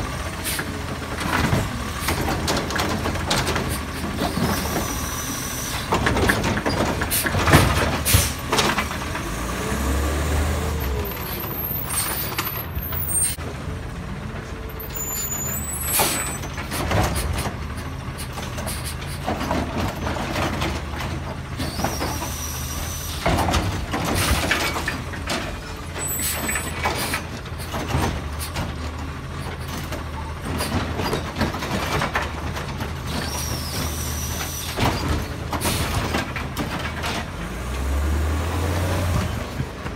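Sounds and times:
diesel engine running: 0.0 - 39.9
bangs of carts being lifted: 5.8 - 9.3, 23.1 - 38.1.

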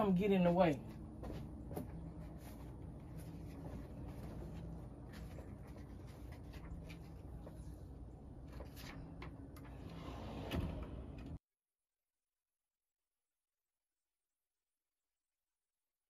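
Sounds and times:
low steady hum: 0.0 - 11.4
cardboard and fabric rustling: 0.9 - 9.7.

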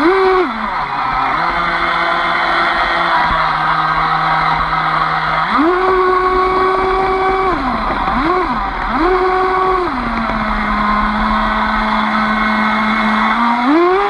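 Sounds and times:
electric motor whining: 0.0 - 14.0.

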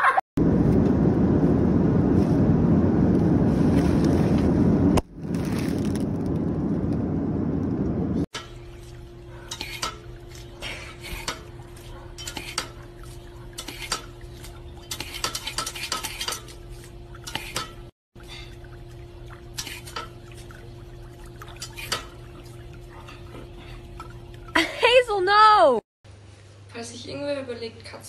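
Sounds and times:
water spurting: 8.4 - 25.3.

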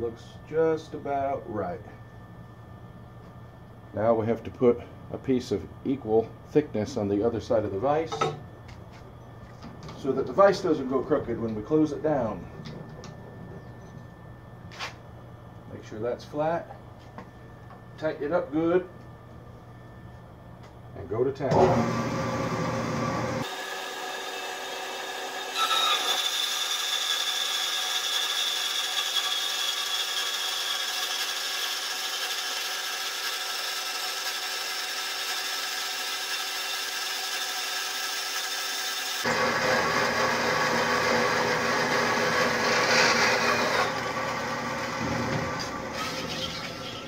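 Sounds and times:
bandsaw cutting metal: 23.4 - 47.0.

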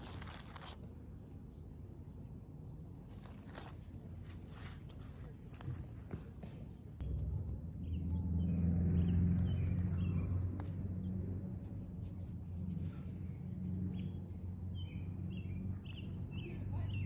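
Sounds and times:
small birds chirping: 1.3 - 17.0
low steady rumble: 6.9 - 17.0.

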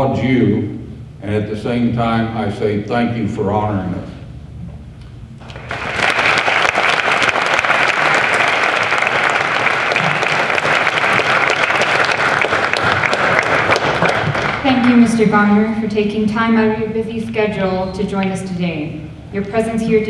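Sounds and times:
audience applauding: 5.4 - 15.2.

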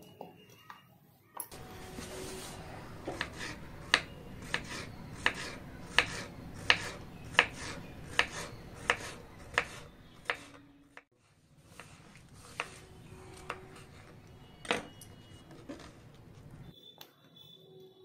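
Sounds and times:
knife chopping on wooden board: 3.0 - 10.6.

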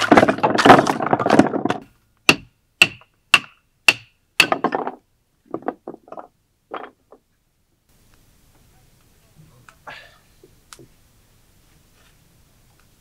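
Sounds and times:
sharp wooden knocks: 0.0 - 7.2.

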